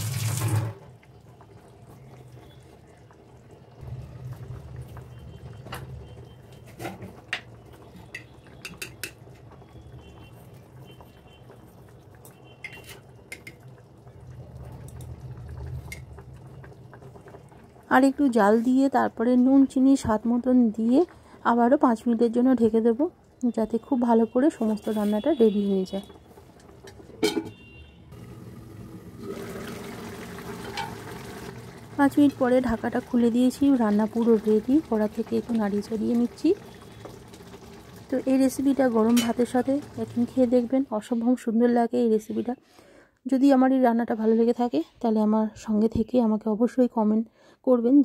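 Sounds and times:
curry bubbling: 0.0s - 23.1s, 24.0s - 40.8s
spoon tapping containers: 8.1s - 9.2s.

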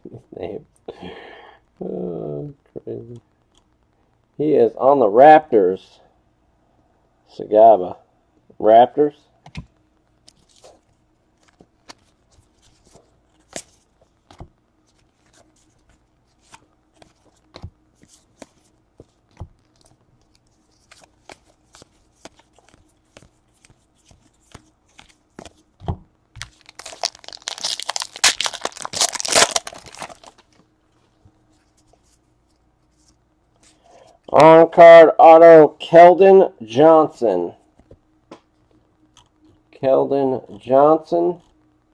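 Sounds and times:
wrapper crinkling and tearing: 26.4s - 30.5s.

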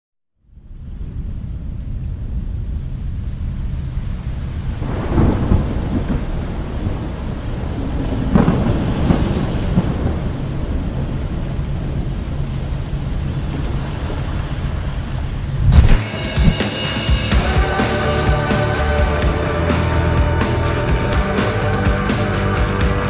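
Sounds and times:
deep thunder rumble: 0.8s - 13.3s, 15.5s - 16.6s
rain-like hiss: 0.8s - 14.1s, 14.9s - 22.6s.

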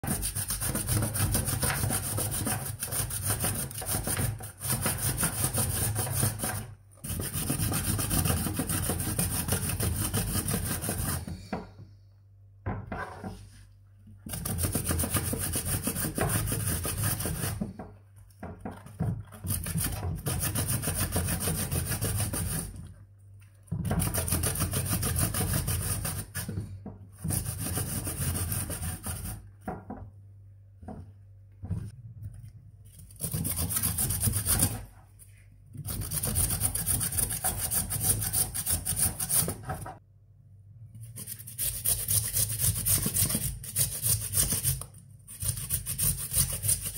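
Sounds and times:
zucchini rasping on box grater: 18.7s - 22.8s, 41.0s - 46.9s.

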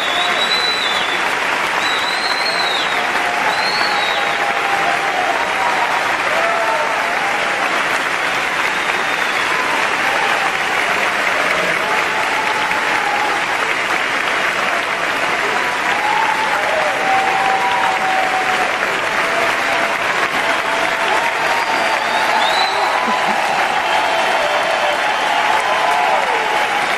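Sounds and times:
audience applauding: 0.0s - 26.9s.

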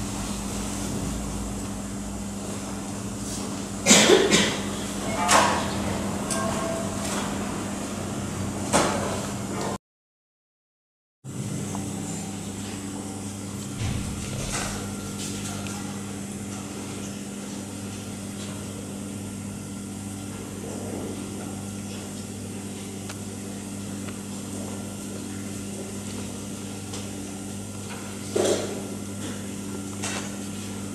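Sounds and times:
low electronic hum: 11.3s - 17.6s.

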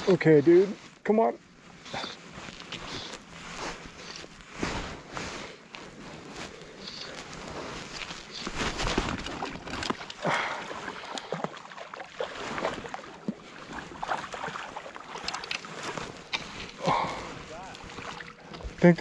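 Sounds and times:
water splashing against float tube: 8.7s - 18.8s.

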